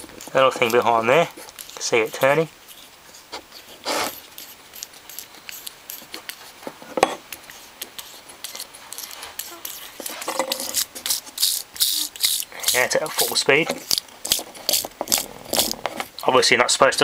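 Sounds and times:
small metal parts clinking: 0:08.4 - 0:16.3.

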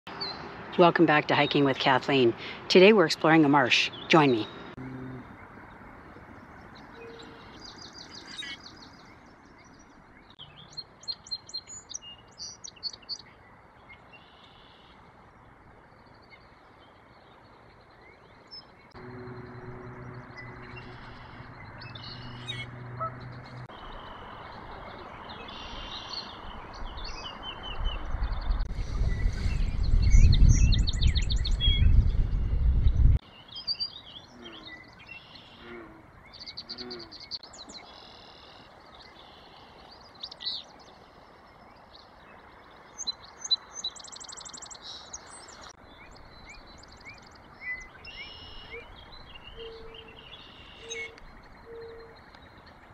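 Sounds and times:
birds singing: 0:00.1 - 0:15.0, 0:15.9 - 0:52.9
short low notes: 0:04.8 - 0:05.4, 0:19.0 - 0:23.7
loud low rumble: 0:19.0 - 0:23.7.

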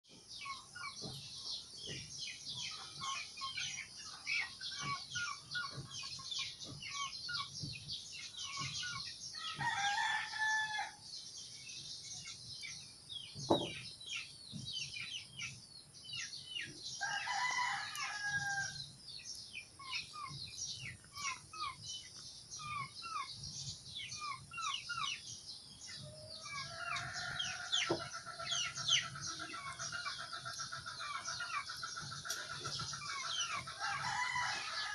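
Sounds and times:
rooster crowing: 0:09.4 - 0:11.0, 0:17.0 - 0:18.8, 0:33.8 - 0:34.9.

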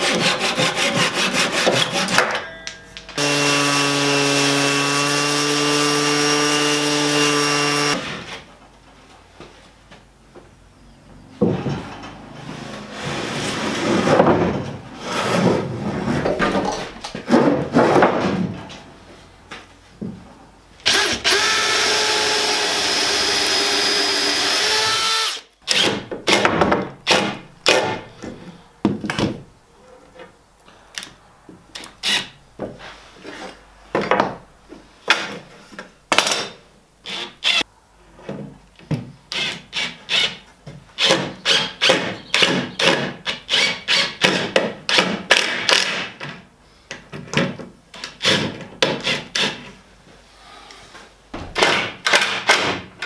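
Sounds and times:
drill boring into wood: 0:03.2 - 0:08.0, 0:20.9 - 0:25.9, 0:37.1 - 0:37.6
drill driving screws in bursts: 0:20.9 - 0:25.8.

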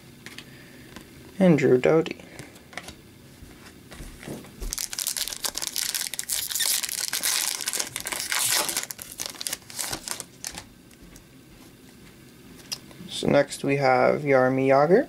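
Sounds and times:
foil wrapper crinkling and tearing: 0:04.6 - 0:10.7.

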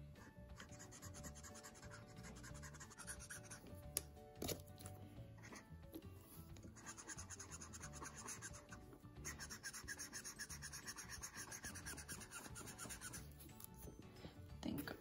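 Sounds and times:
marker scratching on paper: 0:00.2 - 0:03.7, 0:05.4 - 0:13.8.

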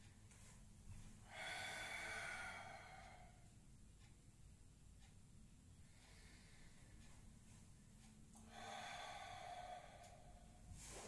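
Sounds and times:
man breathing: 0:01.2 - 0:03.5, 0:05.8 - 0:07.6, 0:08.3 - 0:11.0.

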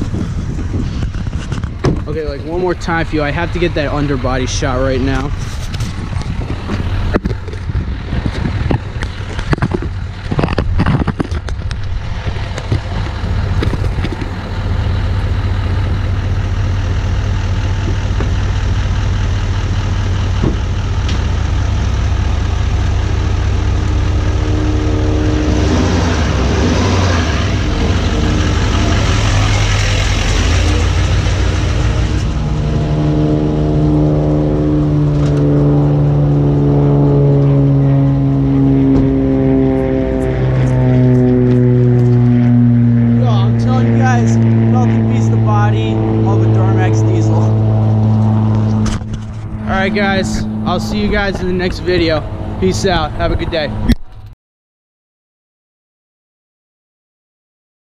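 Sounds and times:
diesel truck engine drone: 0:00.0 - 0:54.4
knocks and bumps: 0:00.1 - 0:02.2, 0:20.4 - 0:21.4.

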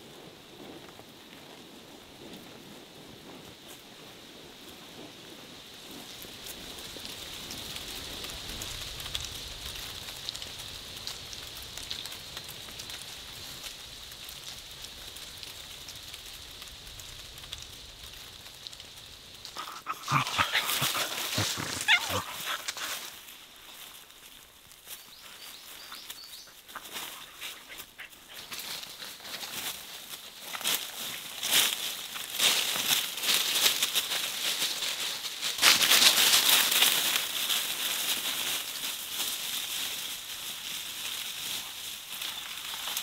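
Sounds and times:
steady outdoor hiss: 0:00.0 - 0:43.0
dog rustling in dry leaves: 0:19.3 - 0:43.0
high dog cries: 0:19.6 - 0:23.1.

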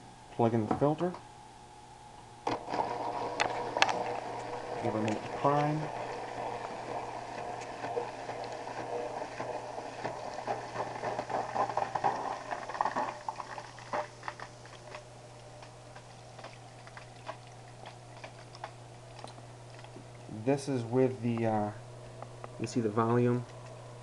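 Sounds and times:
filter motor hum: 0:00.0 - 0:24.0
water gurgling and bubbling: 0:03.6 - 0:14.3
water dripping: 0:15.4 - 0:20.5.

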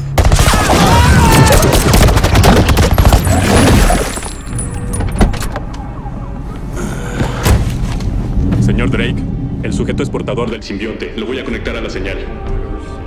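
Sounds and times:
rapid gunfire: 0:01.3 - 0:03.4.

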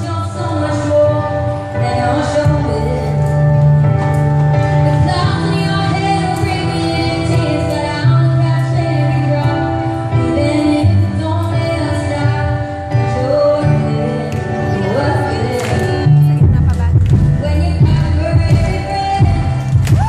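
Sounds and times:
music accompaniment with bass line: 0:00.0 - 0:20.0
woman singing into microphone: 0:00.0 - 0:20.0.

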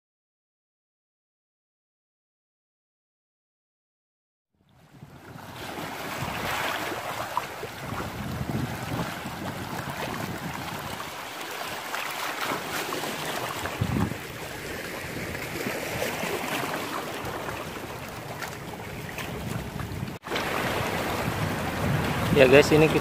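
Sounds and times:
wind buffeting microphone: 0:04.8 - 0:11.2, 0:13.4 - 0:23.0
small waves lapping over rocks: 0:04.9 - 0:23.0.

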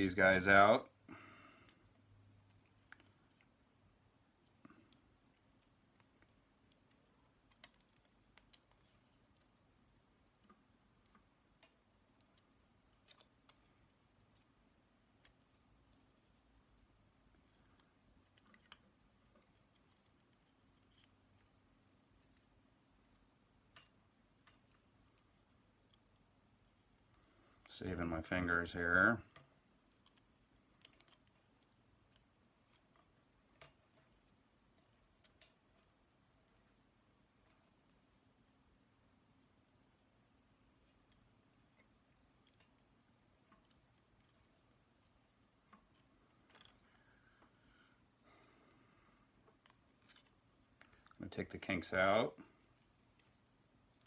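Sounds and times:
small clicks of wire untwisting: 0:04.4 - 0:14.6, 0:15.2 - 0:28.0, 0:29.3 - 0:38.6, 0:39.4 - 0:47.6, 0:49.4 - 0:51.5.

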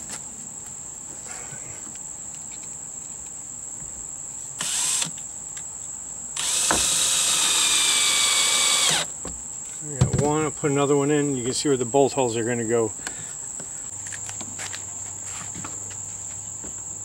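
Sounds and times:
cordless drill driving screws: 0:04.6 - 0:05.1, 0:06.4 - 0:09.1.

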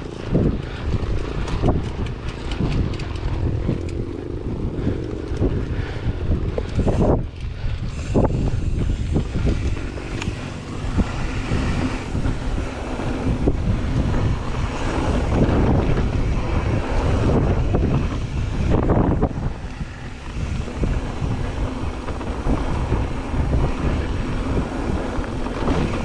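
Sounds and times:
bike knocking and rattling: 0:00.0 - 0:26.0
wind buffeting microphone: 0:00.0 - 0:26.0
tyres hissing on dirt: 0:07.9 - 0:13.3, 0:19.3 - 0:26.0.

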